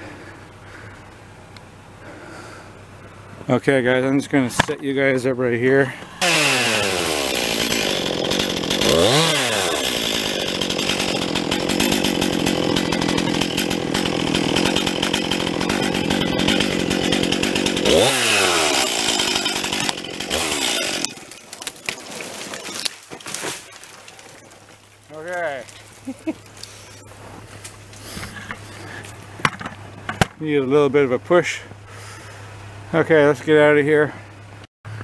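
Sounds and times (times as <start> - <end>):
chainsaw cutting tree: 6.2 - 30.2.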